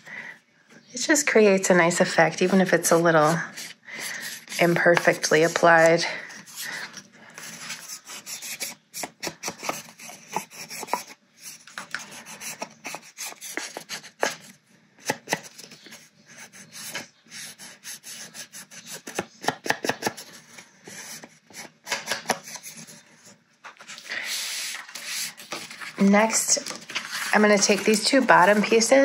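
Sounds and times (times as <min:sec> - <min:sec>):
ink pad scraping on cardstock: 0:02.0 - 0:14.5, 0:23.7 - 0:29.0.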